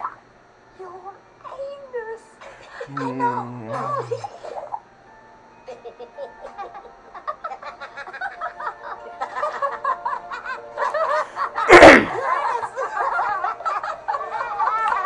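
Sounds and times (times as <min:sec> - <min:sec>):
faint background music: 0:00.0 - 0:15.0
person laughing: 0:02.9 - 0:04.7, 0:05.7 - 0:15.0.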